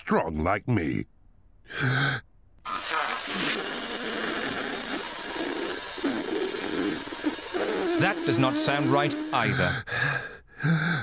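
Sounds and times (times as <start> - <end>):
cartoon horn buzzing blare: 5.4 - 9.7.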